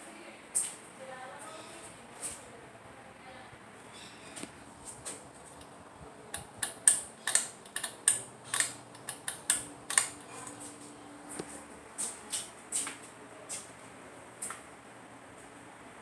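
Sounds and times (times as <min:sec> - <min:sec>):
fan motor humming: 0:01.0 - 0:16.0
fan pull chain clicking and rattling: 0:06.3 - 0:10.7.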